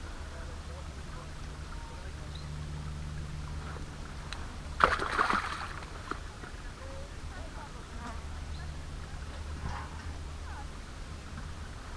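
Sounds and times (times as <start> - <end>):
steady low hum: 0.0 - 11.9
short water splash: 4.8 - 6.2.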